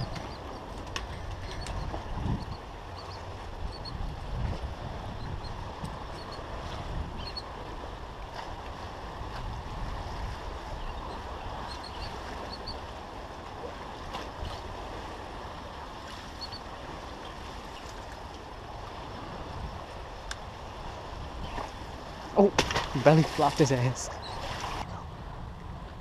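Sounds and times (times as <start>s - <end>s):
wind noise on microphone: 0.0s - 15.6s, 18.7s - 23.0s
water washing below pier: 0.0s - 26.0s.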